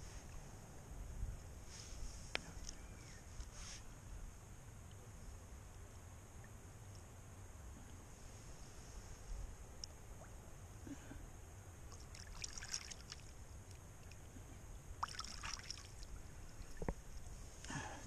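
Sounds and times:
steady low rumble: 0.0s - 12.4s, 13.2s - 18.0s
water splashing: 11.9s - 14.2s, 14.9s - 17.3s.

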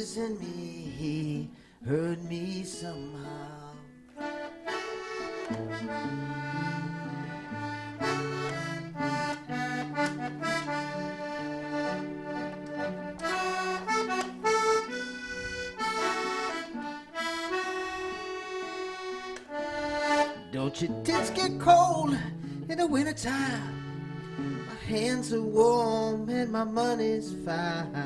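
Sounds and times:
button accordion melody: 4.1s - 26.3s.

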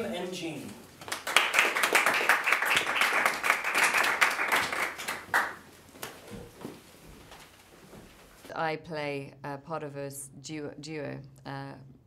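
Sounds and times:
audience applauding: 1.0s - 5.6s.

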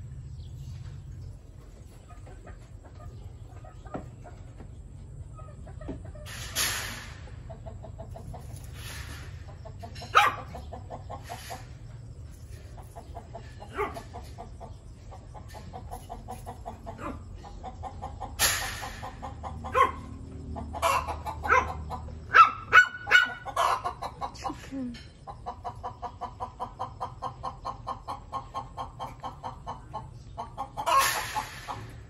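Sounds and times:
chickens clucking: 0.0s - 32.0s
sharp loud chicken calls: 16.7s - 24.4s, 25.5s - 32.0s.

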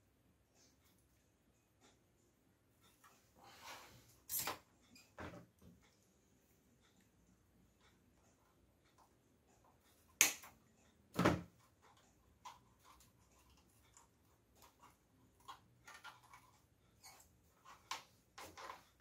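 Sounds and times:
clicks and rustling of wires: 11.4s - 19.0s.

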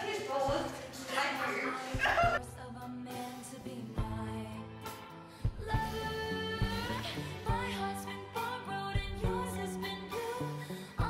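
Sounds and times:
drum beat: 0.0s - 2.4s
person singing: 1.8s - 11.0s.

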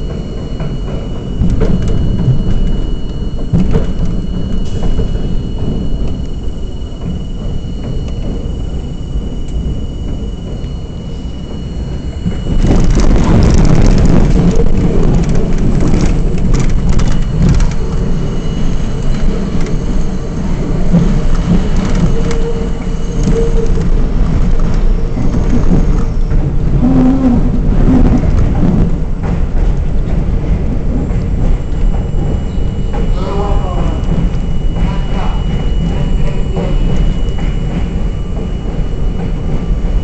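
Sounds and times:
steel wheels rumbling on rails: 0.0s - 40.0s
wheel squeals: 0.0s - 40.0s.

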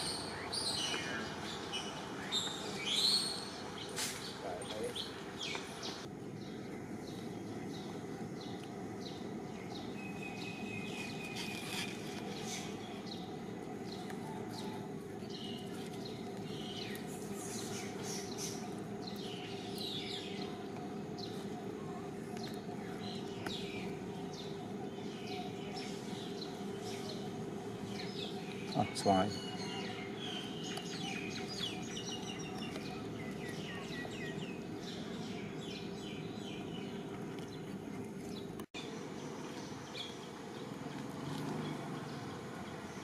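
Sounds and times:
small birds chirping: 0.0s - 43.0s
steady background hum: 0.0s - 43.0s.

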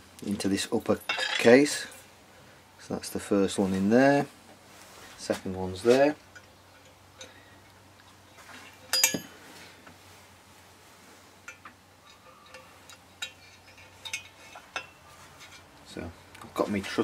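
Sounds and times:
metal parts clinking on metal: 0.8s - 2.0s, 8.8s - 9.3s.

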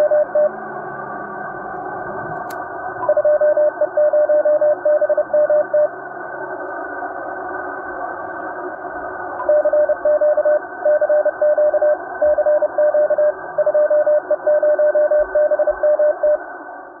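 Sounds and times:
morse code tone: 0.0s - 0.5s, 3.0s - 5.9s, 9.4s - 16.4s
radio hiss: 0.0s - 17.0s.

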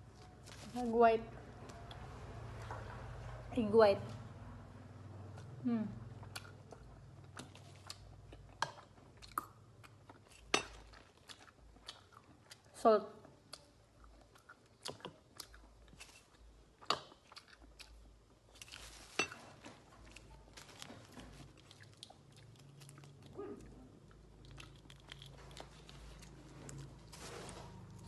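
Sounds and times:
chewing with clicks and crackles: 5.3s - 18.9s, 19.7s - 27.1s.

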